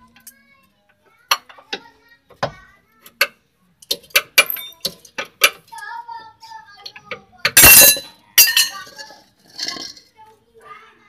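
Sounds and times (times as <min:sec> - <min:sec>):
metal tools knocking and clanking: 0:03.2 - 0:05.7, 0:06.9 - 0:10.0.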